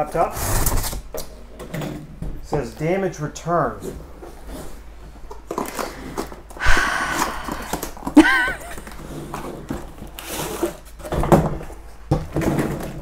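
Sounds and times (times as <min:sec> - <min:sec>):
loud rip: 0:00.3 - 0:01.0.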